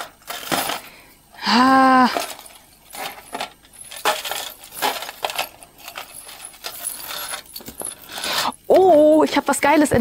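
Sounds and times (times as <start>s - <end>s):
jewellery chains jangling: 2.0s - 10.0s.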